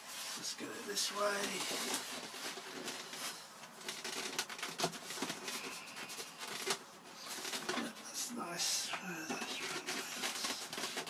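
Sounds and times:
plastic parts clicking and tapping: 0:02.8 - 0:07.9.

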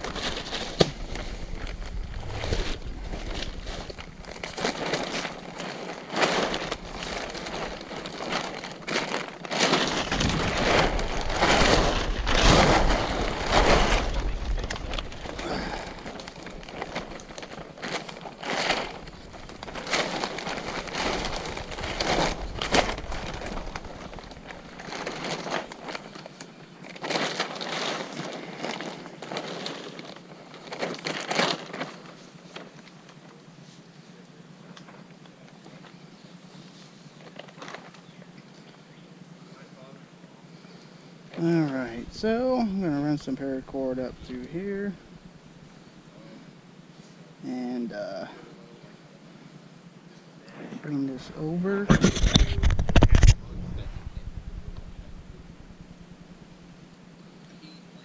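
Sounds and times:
tarp fabric rustling: 0:00.0 - 0:33.8, 0:35.6 - 0:38.1, 0:41.3 - 0:46.0.

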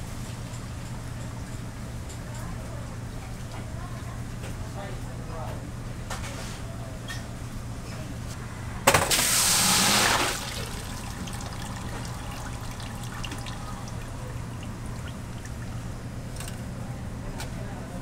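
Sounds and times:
gushing rush of rice and water: 0:09.1 - 0:14.4
steady low hum: 0:10.3 - 0:18.0.

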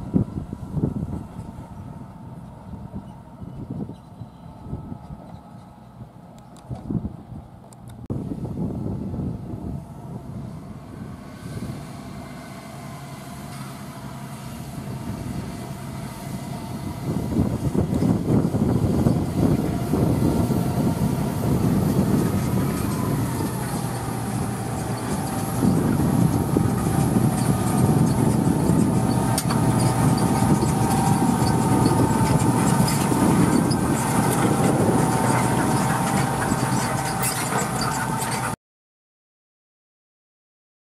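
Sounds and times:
tractor diesel engine under load: 0:00.0 - 0:38.6.

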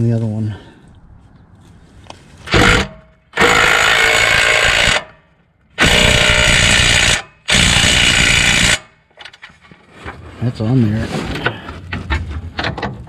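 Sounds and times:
impact wrench hammering: 0:02.5 - 0:05.2, 0:05.8 - 0:08.9.

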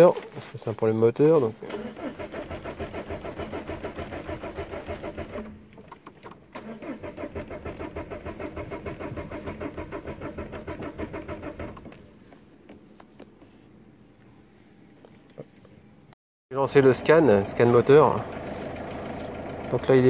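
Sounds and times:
starter motor cranking diesel engine: 0:01.4 - 0:12.1, 0:16.7 - 0:20.0.

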